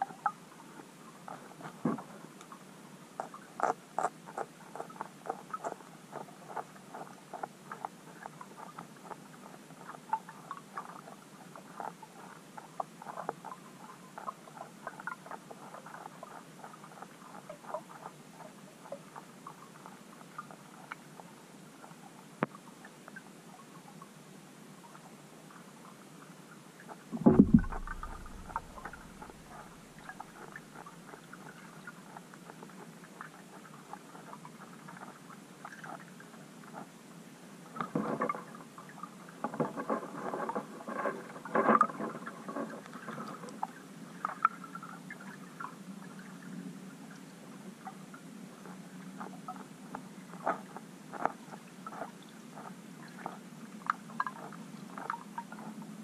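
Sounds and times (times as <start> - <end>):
underwater clicks and crackles: 3.2 - 21.2, 26.9 - 36.9, 37.7 - 46.3, 48.6 - 55.9
loud thump: 27.2 - 29.2.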